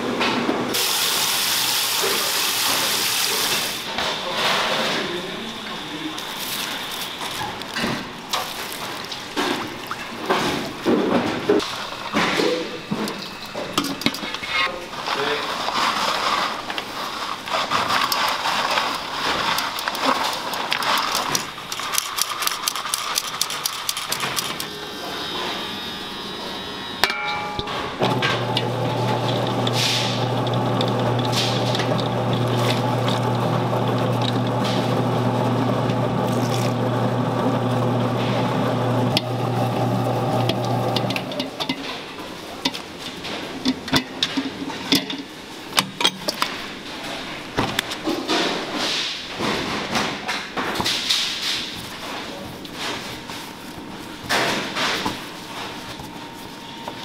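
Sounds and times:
dough scraping through metal sieve: 0:15.0 - 0:21.1, 0:28.3 - 0:33.2
stand mixer motor humming: 0:24.6 - 0:27.0, 0:28.0 - 0:41.4.

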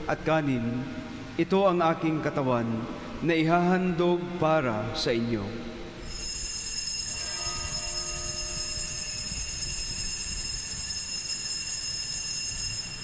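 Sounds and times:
altar bells ringing: 0:06.0 - 0:13.0
lower ringing tone: 0:06.0 - 0:13.0.

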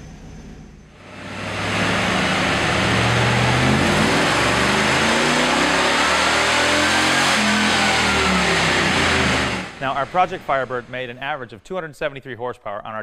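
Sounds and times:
engine revving at full throttle: 0:01.0 - 0:11.1.

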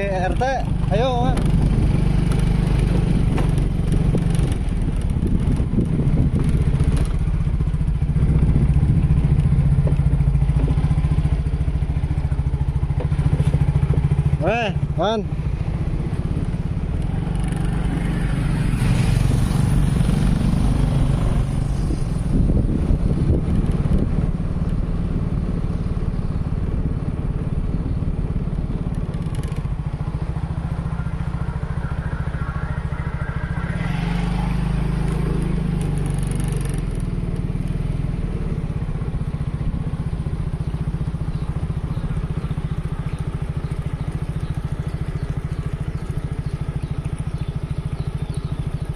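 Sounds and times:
small motorcycle engine running: 0:00.0 - 0:48.9.

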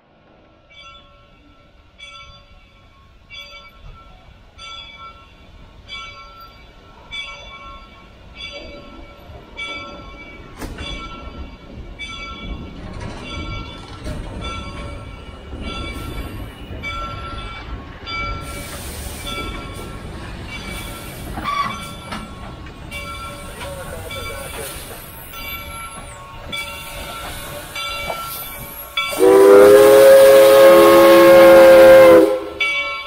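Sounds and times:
train rumbling past: 0:00.0 - 0:33.0
locomotive bell ringing: 0:00.7 - 0:33.0
steam hiss: 0:18.2 - 0:22.3, 0:23.1 - 0:32.8.

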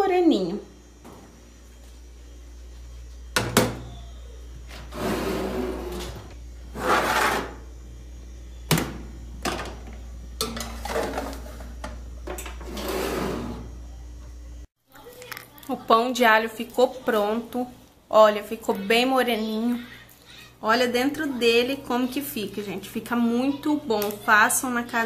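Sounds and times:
steady low hum: 0:00.0 - 0:15.1
scraping or rustling: 0:04.8 - 0:07.6.

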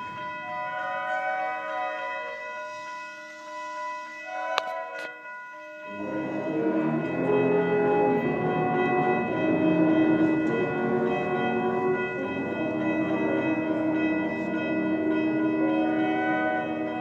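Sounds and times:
wind band playing: 0:05.9 - 0:17.0.

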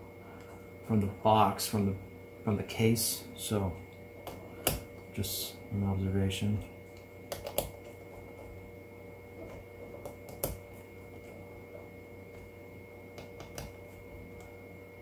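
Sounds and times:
faint hum: 0:00.0 - 0:15.0
screwdriver clicks and taps: 0:07.3 - 0:07.8.

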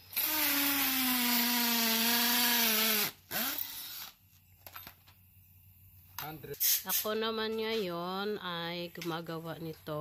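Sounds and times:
cordless drill drilling metal: 0:00.0 - 0:04.2
faint drill whir: 0:00.0 - 0:05.2.

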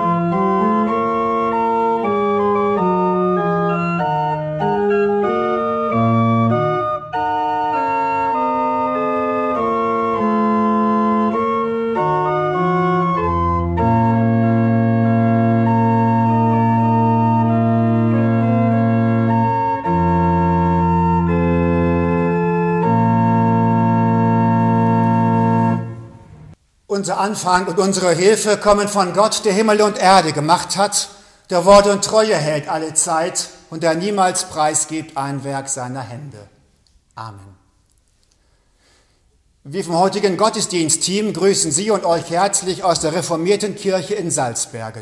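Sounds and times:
church organ playing chords: 0:00.0 - 0:26.6, 0:39.7 - 0:45.0.

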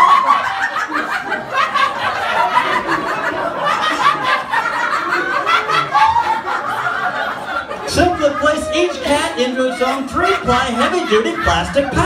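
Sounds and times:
audience laughing: 0:00.0 - 0:12.0.

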